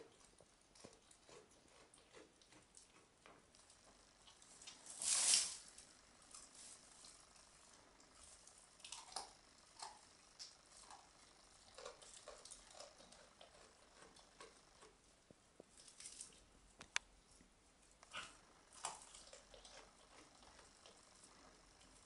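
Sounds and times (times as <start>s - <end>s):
goat chewing conifer needles: 8.1s - 15.0s, 18.0s - 22.0s.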